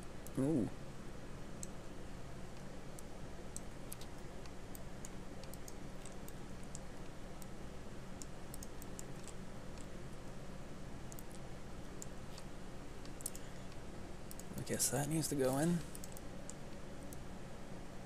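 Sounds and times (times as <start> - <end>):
steady low hum: 0.0 - 18.0
computer mouse clicking: 2.5 - 7.5, 8.2 - 9.9, 11.1 - 14.6, 15.9 - 17.2
keyboard clicking: 8.2 - 9.9, 14.3 - 14.5.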